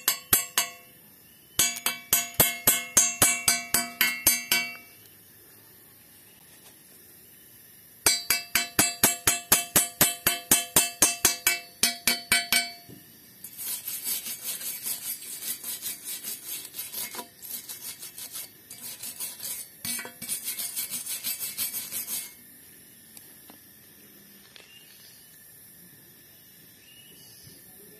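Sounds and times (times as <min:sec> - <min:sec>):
chipping hammer tapping steel pipe: 0:00.0 - 0:00.9, 0:01.6 - 0:05.0, 0:08.1 - 0:13.6, 0:19.8 - 0:20.5
wire brush scrubbing metal: 0:13.4 - 0:22.4.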